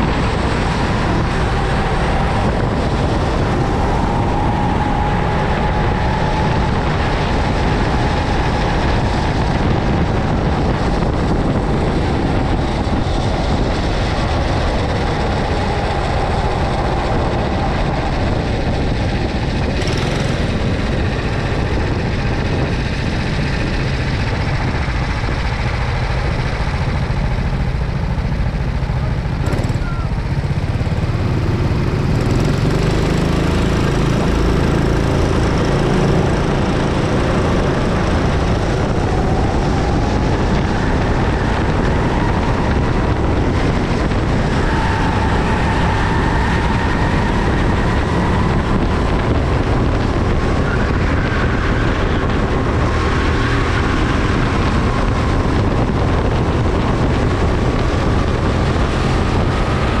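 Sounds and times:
go-kart engine running hard: 0:00.0 - 1:00.0.

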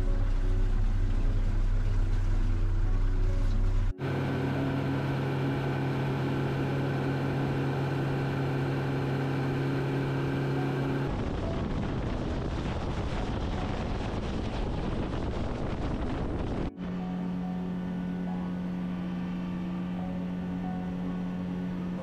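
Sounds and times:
outboard motor running: 0:00.0 - 0:22.0
water rushing in wake: 0:04.0 - 0:17.0
wind rushing: 0:11.1 - 0:16.7.

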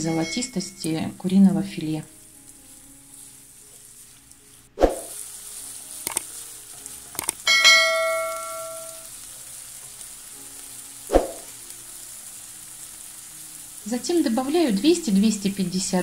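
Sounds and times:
bell chime: 0:00.0 - 0:00.8, 0:07.5 - 0:09.1
chicken sizzling in a pan: 0:00.0 - 0:16.0
clicks: 0:06.1 - 0:06.3, 0:07.2 - 0:07.4.

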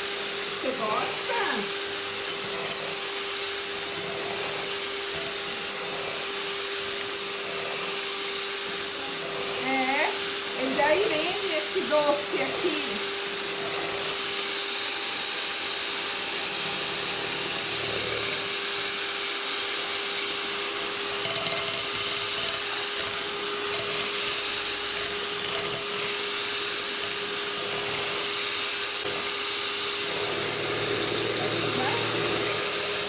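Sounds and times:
electric hand mixer whisking: 0:00.0 - 0:33.0.

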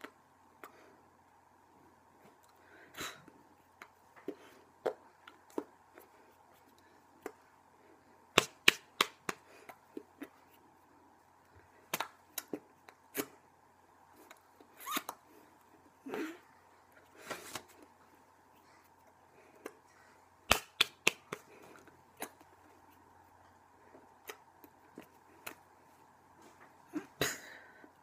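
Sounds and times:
hands slapping and clapping: 0:08.3 - 0:09.4, 0:11.9 - 0:12.2, 0:20.5 - 0:21.5.

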